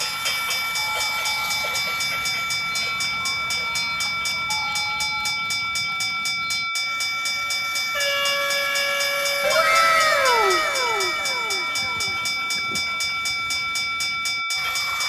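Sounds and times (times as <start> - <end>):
toy train rhythmic clicking: 0.0 - 15.0
high electronic tones: 7.9 - 13.7.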